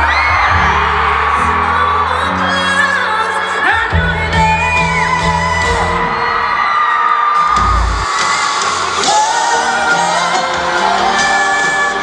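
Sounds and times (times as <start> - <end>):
woman singing: 0.0 - 6.1, 9.0 - 12.0
crowd voices and shouts: 0.0 - 12.0
live pop ballad chords: 0.0 - 12.0.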